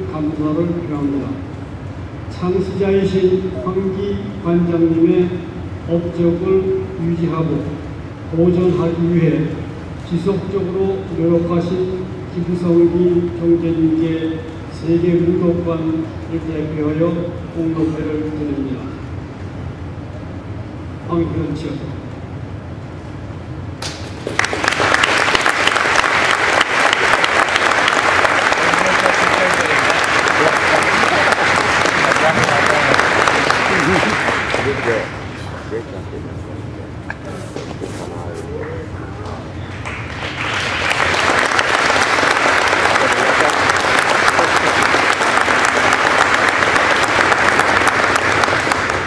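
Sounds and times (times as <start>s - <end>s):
audience applauding: 23.8s - 35.5s, 39.7s - 49.0s.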